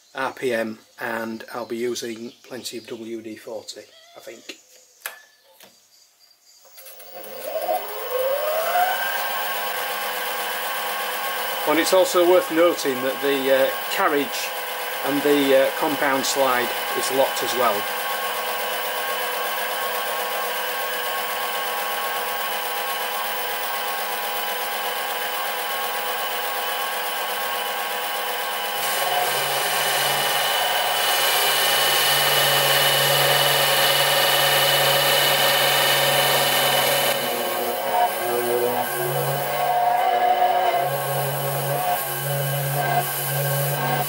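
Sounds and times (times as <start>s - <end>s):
lathe motor whine: 6.7s - 44.0s
tool cutting metal hiss: 11.2s - 19.4s, 28.1s - 44.0s.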